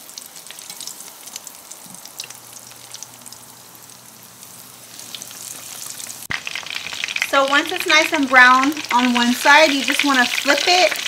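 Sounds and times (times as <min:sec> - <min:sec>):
chicken sizzling in oil: 0:00.0 - 0:11.0.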